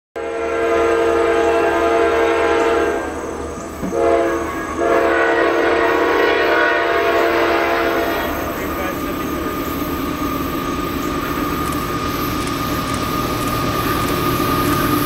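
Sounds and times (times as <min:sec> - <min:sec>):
locomotive air horn blasts: 0:00.2 - 0:03.2, 0:03.8 - 0:08.5.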